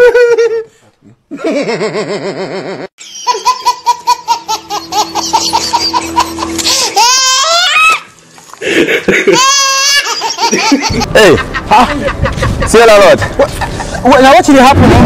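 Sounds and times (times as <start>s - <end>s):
high-pitched laughter: 1.4s - 8.1s, 8.7s - 12.7s
sweeping squeals: 4.6s - 8.1s.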